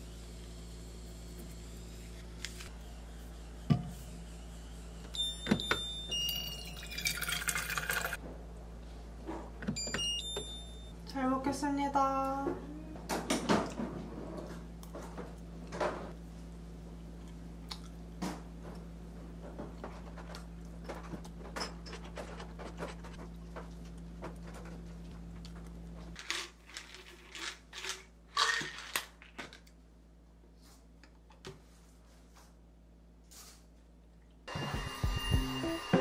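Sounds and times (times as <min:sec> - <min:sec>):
chewing: 0:17.2 - 0:18.0.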